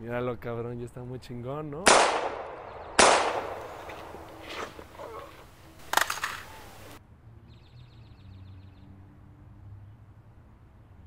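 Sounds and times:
loud sharp crack: 1.9 - 5.0, 5.8 - 7.0.

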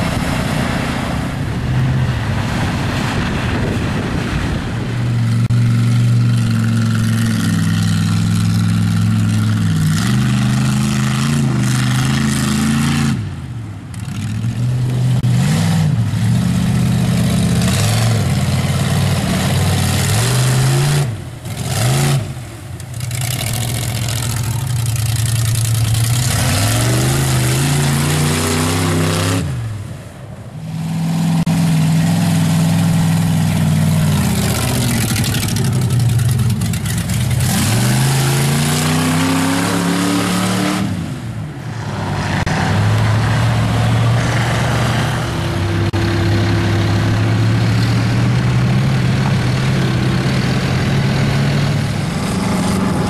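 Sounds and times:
truck engine revving hard: 0.0 - 30.0, 30.6 - 53.0.

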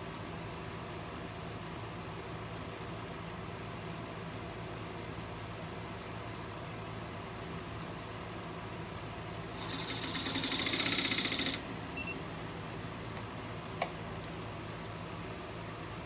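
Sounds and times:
pencil chattering on spinning bowl: 9.6 - 11.6
low steady hum: 11.6 - 16.0.

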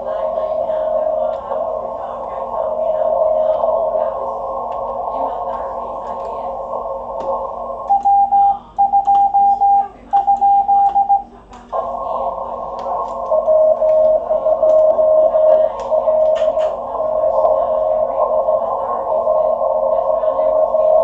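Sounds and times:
low-pitched morse signal: 0.0 - 21.0
high-pitched morse sidetone: 6.9 - 11.2, 12.8 - 18.6.

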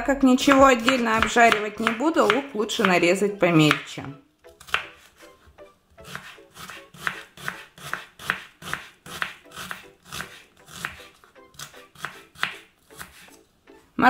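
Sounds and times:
knife chopping on wooden board: 0.4 - 3.1, 3.7 - 3.9, 4.6 - 5.3, 6.0 - 13.4.

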